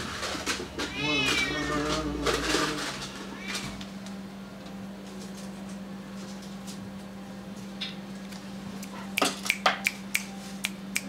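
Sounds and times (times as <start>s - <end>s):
low hum: 0.0s - 9.2s
fingers snapping: 8.3s - 11.0s.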